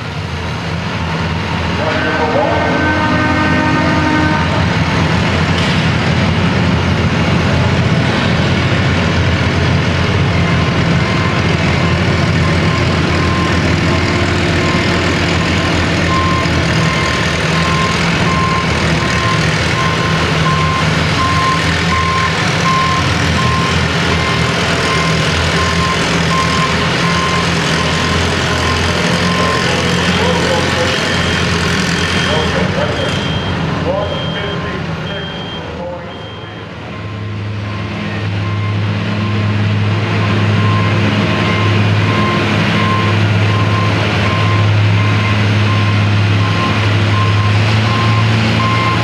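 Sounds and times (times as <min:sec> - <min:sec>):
tractor engine under load: 0:02.7 - 0:49.0
back-up alarm beeping: 0:10.4 - 0:31.5, 0:32.1 - 0:39.5, 0:40.2 - 0:49.0.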